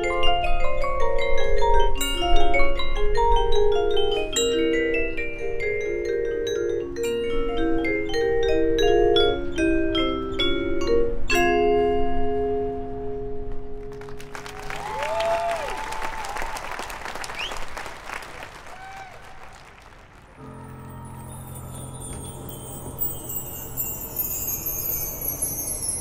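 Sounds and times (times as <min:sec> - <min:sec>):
marimba and vibraphone notes: 0:00.0 - 0:13.5, 0:20.7 - 0:26.0
audience applauding: 0:13.9 - 0:20.9
crowd whoops: 0:14.3 - 0:19.7, 0:20.4 - 0:21.8
chimes: 0:20.4 - 0:26.0.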